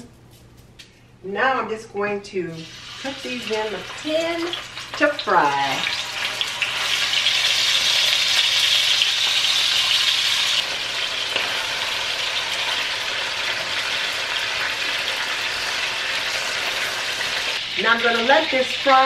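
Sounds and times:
chicken sizzling in hot oil: 0:02.6 - 0:19.0.

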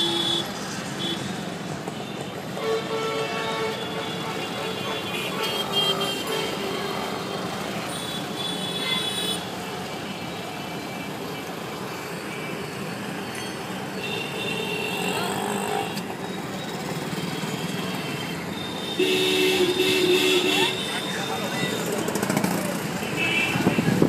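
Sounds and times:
scooters and rickshaws passing: 0:00.0 - 0:24.0
vehicle horn beeping: 0:02.2 - 0:07.1, 0:17.2 - 0:21.8, 0:23.0 - 0:24.0.

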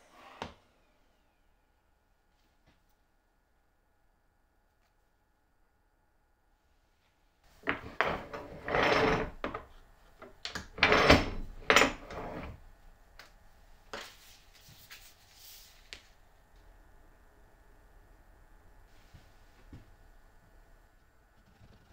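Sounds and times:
wood-on-wood scraping: 0:07.6 - 0:09.8, 0:10.6 - 0:12.6.

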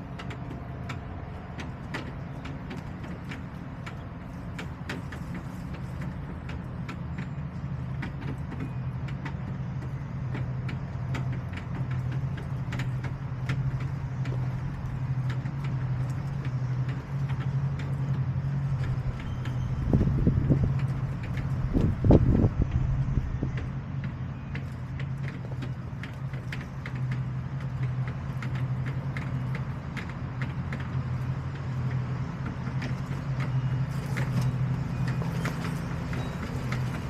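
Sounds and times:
engine humming: 0:00.0 - 0:37.0.

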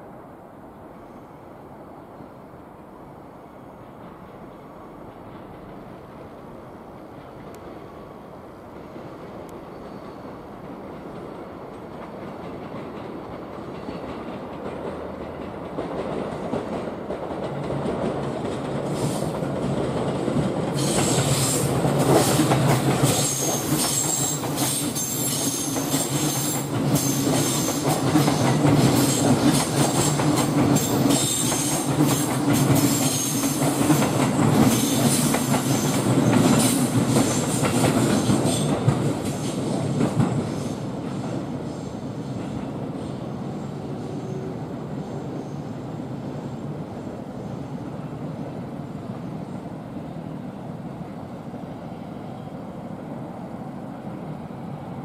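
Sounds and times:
train rumble: 0:00.0 - 0:55.0.

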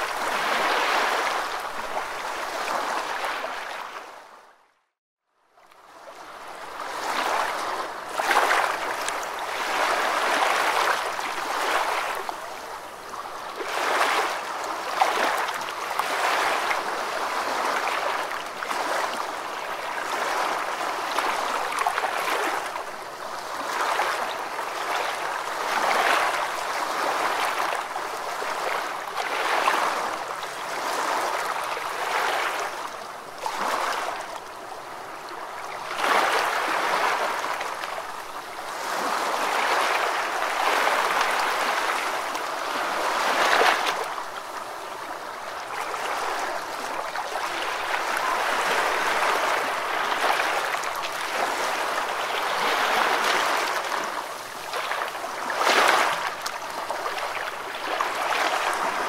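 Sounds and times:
water rushing and babbling: 0:00.0 - 0:04.6, 0:05.7 - 0:59.0.

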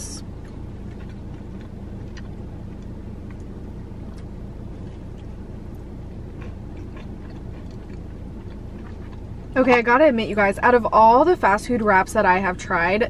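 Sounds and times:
car engine humming: 0:00.0 - 0:13.0
person chewing food: 0:00.2 - 0:09.6.

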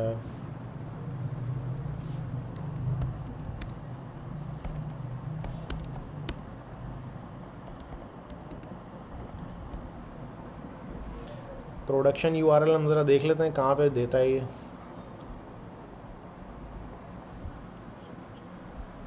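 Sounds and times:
steady low hum: 0:00.0 - 0:19.0
computer keyboard keystrokes: 0:02.5 - 0:03.8, 0:04.5 - 0:06.6, 0:07.6 - 0:09.9.

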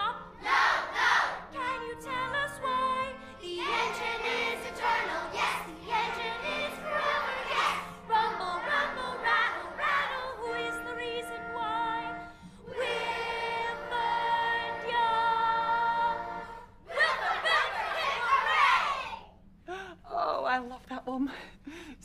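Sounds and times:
woman and children singing: 0:01.4 - 0:18.5.

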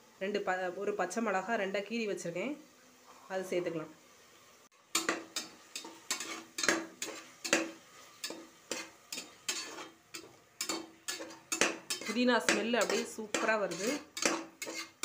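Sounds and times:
spoon scraping metal pot: 0:05.0 - 0:15.0.

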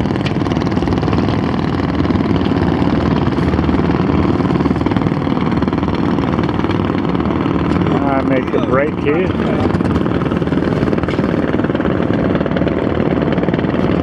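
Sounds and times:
pulsing engine-like rumble: 0:00.0 - 0:14.0.

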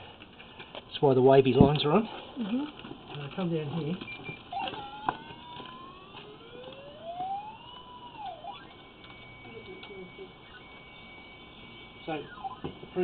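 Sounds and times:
gliding electronic tone: 0:04.5 - 0:13.0.

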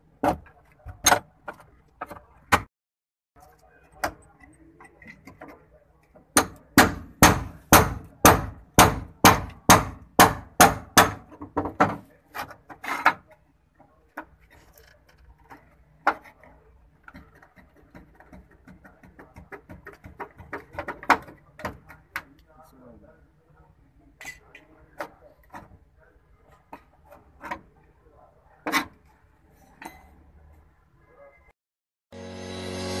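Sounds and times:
light knocks and scrapes: 0:11.6 - 0:21.5.

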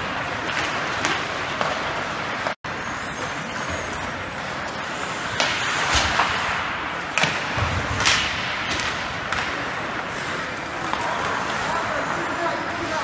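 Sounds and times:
sticks and puck cracking: 0:00.4 - 0:02.6, 0:05.4 - 0:12.2
skates scraping on ice: 0:03.2 - 0:13.0.

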